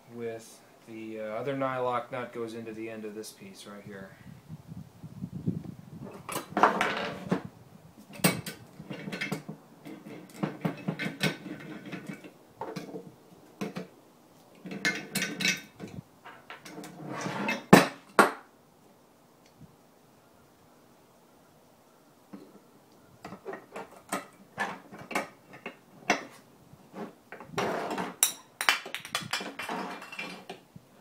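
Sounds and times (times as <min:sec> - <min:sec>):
metal vise clunking and rattling: 0:08.1 - 0:13.0, 0:14.6 - 0:18.3.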